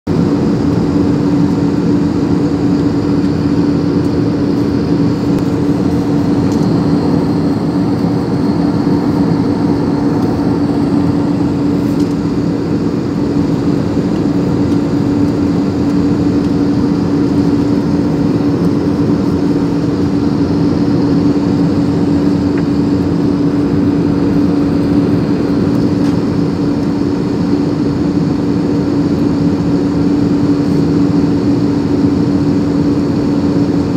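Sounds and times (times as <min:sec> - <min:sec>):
jet engines and airflow rushing: 0:00.1 - 0:33.9
low hum: 0:00.1 - 0:33.9.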